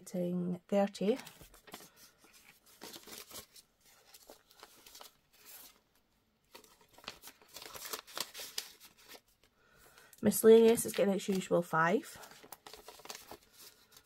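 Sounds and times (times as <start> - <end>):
banknotes and plastic pouch rustling: 0.8 - 14.0.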